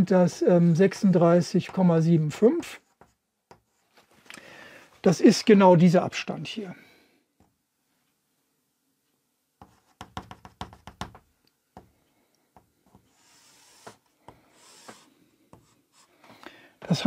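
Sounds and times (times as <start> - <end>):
chalk writing on blackboard: 12.8 - 16.2.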